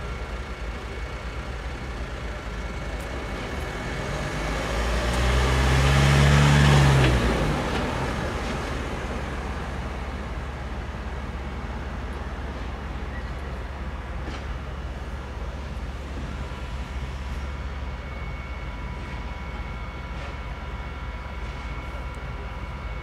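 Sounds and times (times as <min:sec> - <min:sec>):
pickup truck driving past: 0:03.5 - 0:10.0.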